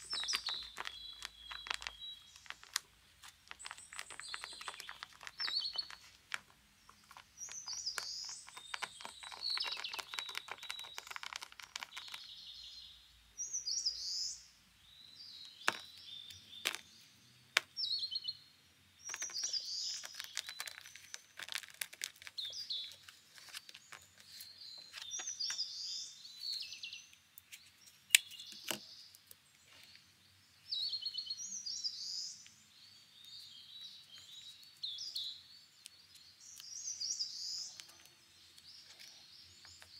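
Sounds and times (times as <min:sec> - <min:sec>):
taped paper crinkling and clicking: 0:00.0 - 0:12.2, 0:19.1 - 0:25.3
small birds chirping: 0:00.0 - 0:39.9.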